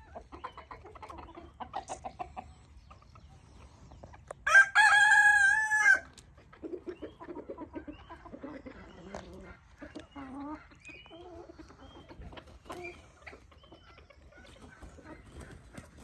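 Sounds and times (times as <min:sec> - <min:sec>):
chickens clucking softly: 0:00.0 - 0:16.0
rooster crowing: 0:04.5 - 0:06.0.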